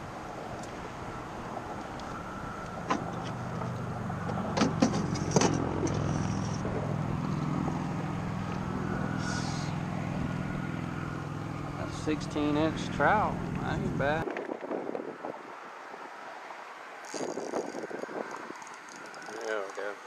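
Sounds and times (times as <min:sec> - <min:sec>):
steady low hum: 0:00.0 - 0:14.3.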